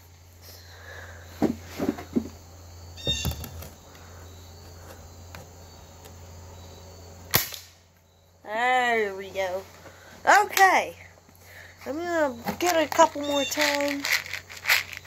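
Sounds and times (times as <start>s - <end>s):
bb gun shot: 7.3s - 7.8s.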